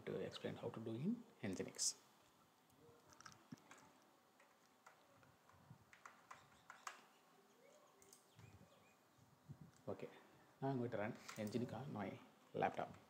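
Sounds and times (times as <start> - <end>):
computer mouse clicks: 5.9 - 7.1.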